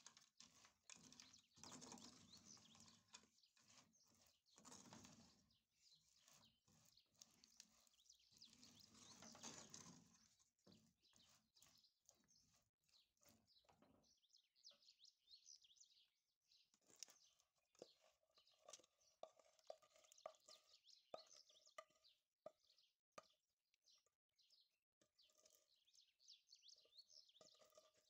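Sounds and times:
wooden spoon stirring peanuts in pot: 0.0 - 13.5, 16.8 - 22.6, 25.0 - 28.0.

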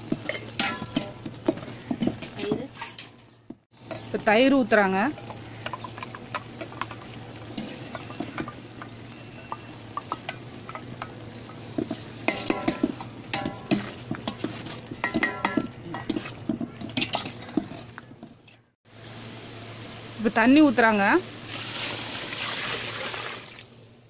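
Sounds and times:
frying sizzle: 0.0 - 2.5, 3.7 - 18.2, 18.8 - 24.0
ladle scraping pot: 0.0 - 3.2, 5.2 - 18.7
metal clinks on pot: 0.1 - 1.4, 12.2 - 17.9.

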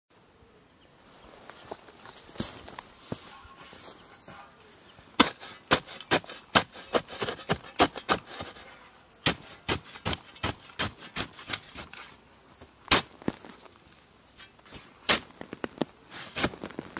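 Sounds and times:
spade chopping into hard soil: 5.2 - 8.6, 9.2 - 12.2, 12.8 - 13.5, 14.4 - 16.8.

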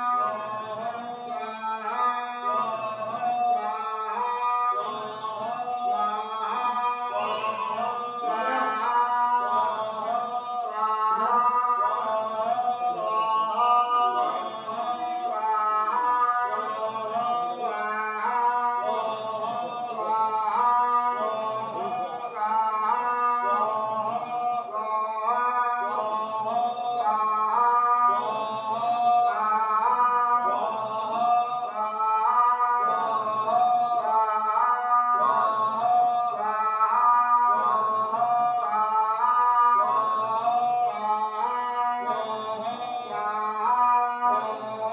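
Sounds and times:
person singing devotional chant: 0.0 - 44.9.

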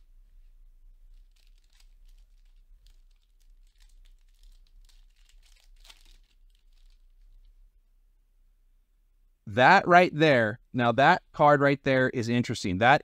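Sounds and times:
foil pack tearing and crinkling: 1.1 - 7.5.

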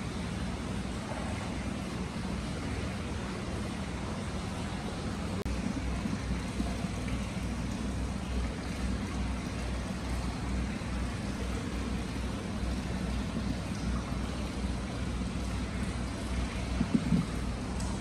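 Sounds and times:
water pouring into stone basin: 5.4 - 18.0.

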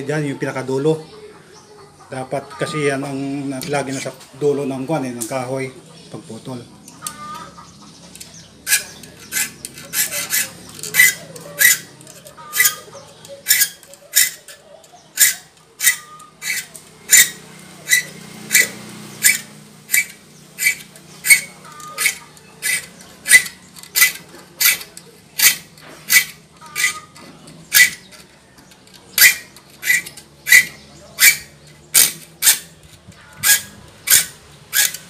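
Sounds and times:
file rasping on saw teeth: 8.3 - 14.6, 15.2 - 28.1, 29.2 - 32.8, 33.4 - 35.0.

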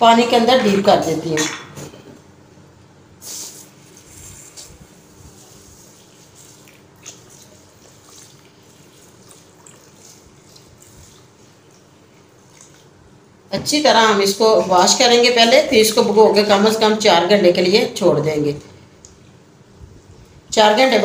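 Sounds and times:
water pouring into bowl: 5.7 - 12.9.

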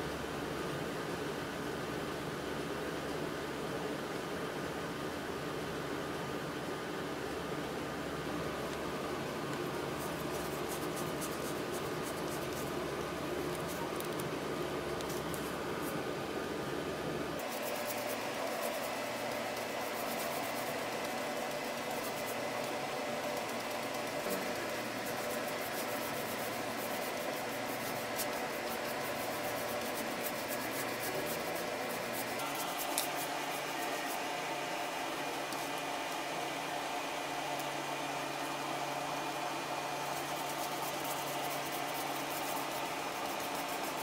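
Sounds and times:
steady background hum: 0.0 - 44.0
paintbrush scratching on wood: 9.9 - 12.8, 17.4 - 35.8, 39.9 - 44.0.

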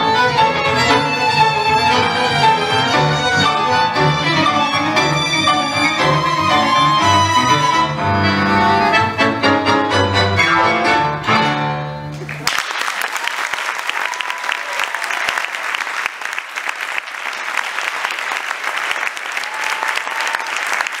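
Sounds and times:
tango ensemble closing chord: 0.0 - 12.2
audience applause: 12.1 - 21.0.

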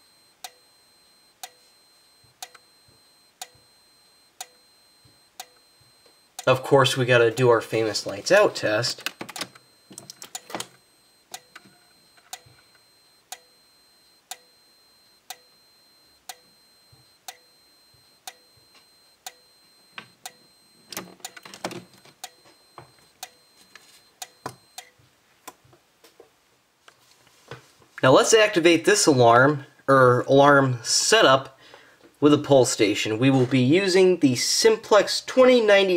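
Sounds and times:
strobe flash ticking: 0.0 - 6.8, 7.4 - 25.0
faint high steady whine: 0.0 - 25.6.

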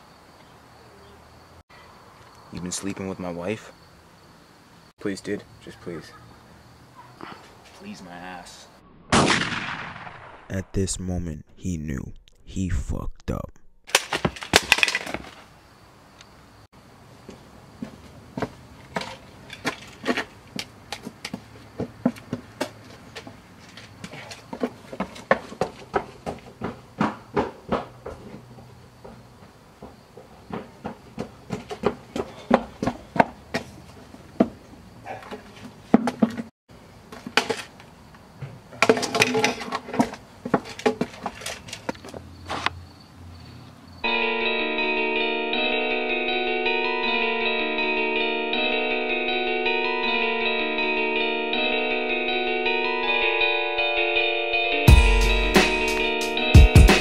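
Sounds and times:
skateboard and cone knocking pavement: 17.8 - 34.6, 35.3 - 36.5, 37.1 - 42.7
electric guitar music: 44.1 - 57.0.

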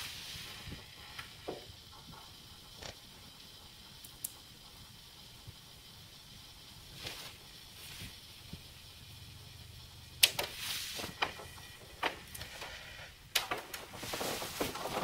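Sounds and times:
tape deck humming: 0.0 - 15.0
tape mechanism clicks and clunks: 10.2 - 15.0.

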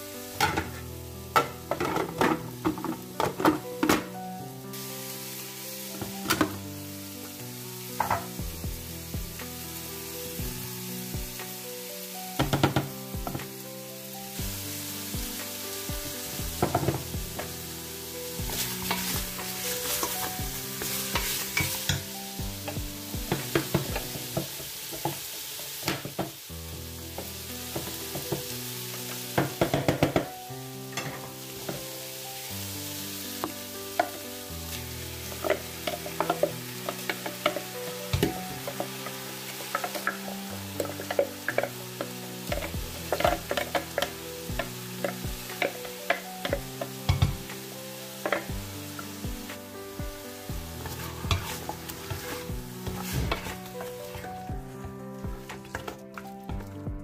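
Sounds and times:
meat sizzling in a pot: 0.0 - 57.0
spoon stirring and knocking pot: 1.4 - 4.0, 29.4 - 30.3, 35.4 - 41.8, 42.5 - 47.5, 48.2 - 48.6, 50.8 - 54.3.

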